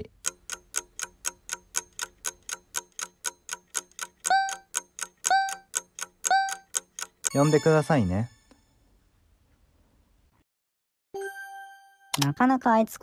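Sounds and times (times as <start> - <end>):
clock ticking fast: 0.0 - 7.8.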